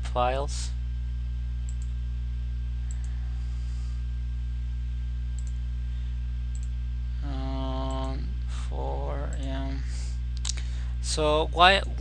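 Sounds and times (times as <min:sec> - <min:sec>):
loud electrical hum: 0:00.0 - 0:12.0
person speaking: 0:07.2 - 0:12.0.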